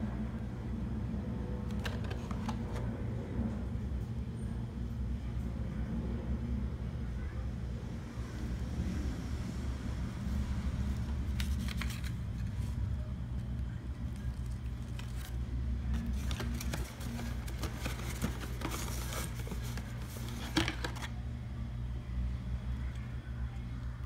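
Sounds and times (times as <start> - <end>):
paper rustling and crackling: 11.2 - 12.8, 14.0 - 21.1.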